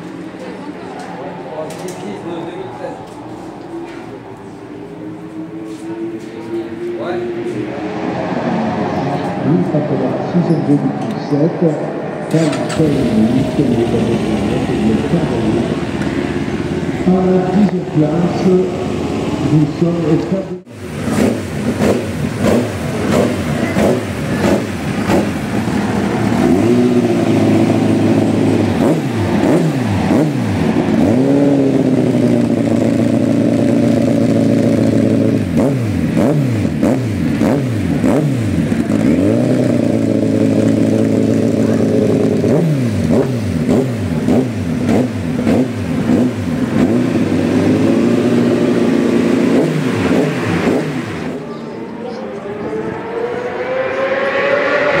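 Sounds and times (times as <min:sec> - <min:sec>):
motorcycles revving: 0:00.0 - 0:55.0
motorcycle engine idling: 0:12.5 - 0:49.5.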